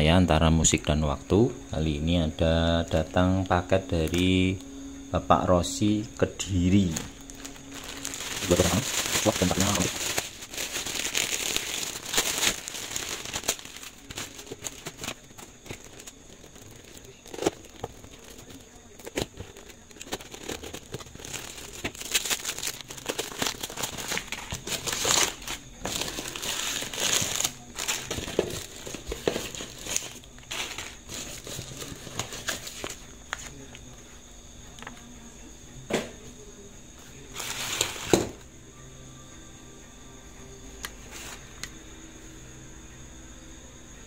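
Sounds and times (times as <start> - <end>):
plastic and paper crinkling: 6.4 - 33.6, 37.3 - 38.3
utility knife cutting package: 6.7 - 33.0.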